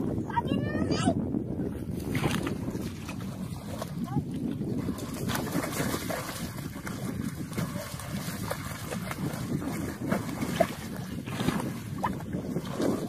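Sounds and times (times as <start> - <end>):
water sloshing and trickling: 1.8 - 13.0.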